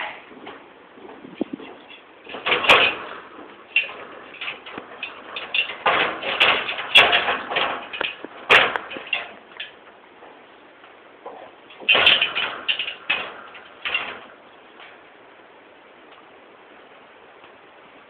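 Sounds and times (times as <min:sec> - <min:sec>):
dog claws scrabbling on ladder: 0:00.4 - 0:15.0.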